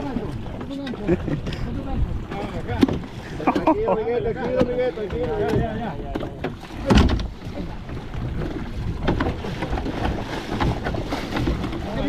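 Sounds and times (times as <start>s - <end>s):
water splashing: 0.0s - 12.0s
fish thrashing against boat: 4.4s - 12.0s.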